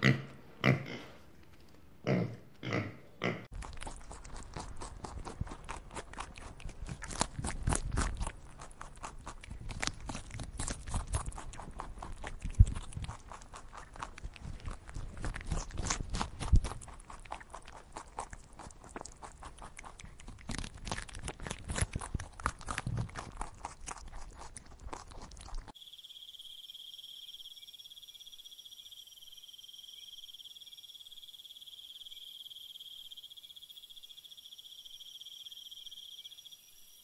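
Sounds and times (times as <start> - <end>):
rabbits chewing leafy greens: 3.5 - 25.8.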